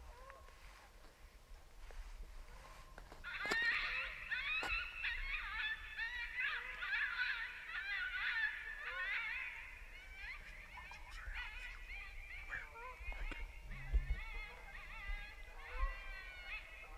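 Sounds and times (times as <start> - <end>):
coyotes yipping and howling: 0.0 - 1.0, 1.8 - 16.9.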